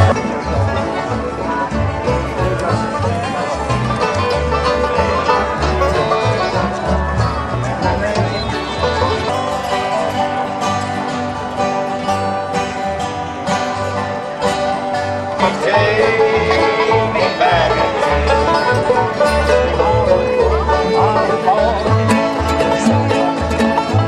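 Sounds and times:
acoustic guitar: 0.0s - 24.0s
banjo picking: 0.0s - 24.0s
sustained higher melody line: 15.3s - 24.0s.

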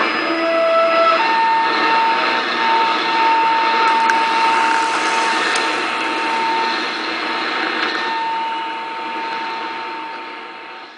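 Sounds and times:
steady radio tone: 0.0s - 10.4s
radio static and hiss: 3.6s - 9.2s.

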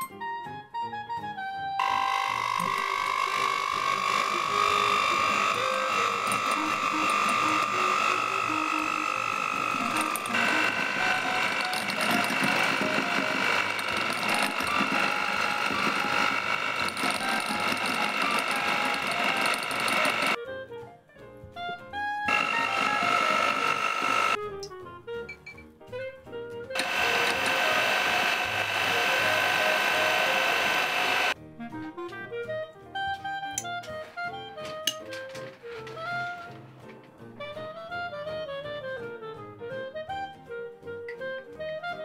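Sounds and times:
electric hand mixer whine: 1.8s - 20.4s, 22.2s - 24.4s, 26.8s - 31.4s.

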